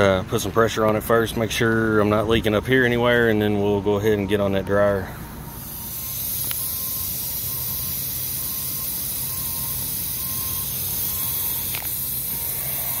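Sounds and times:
nitrogen hissing through hose: 5.6s - 13.0s.

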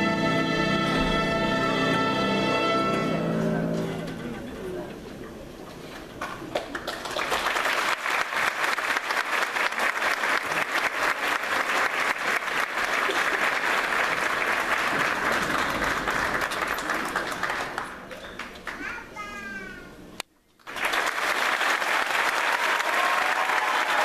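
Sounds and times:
large audience applauding: 6.3s - 18.8s, 20.6s - 24.0s.

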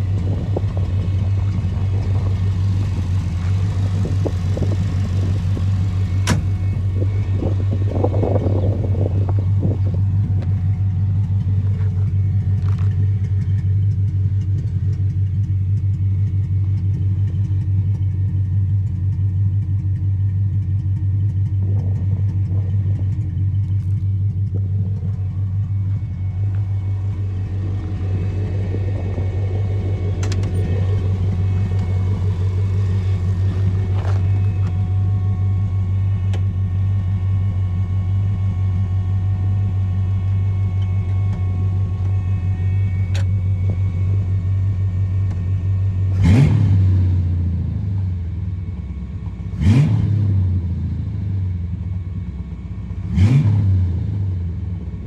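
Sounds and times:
car engine idling: 0.0s - 55.0s.

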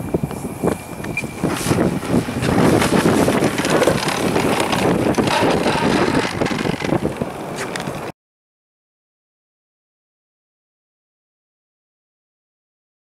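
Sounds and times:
wind buffeting microphone: 0.0s - 8.1s.

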